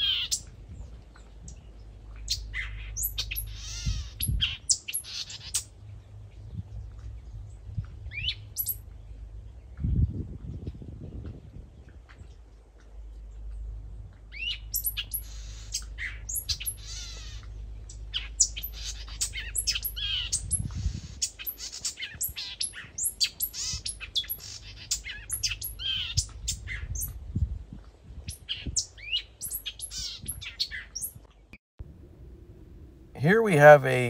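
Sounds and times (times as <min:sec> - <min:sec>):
songbird singing: 0:00.0 - 0:10.1, 0:13.0 - 0:27.1.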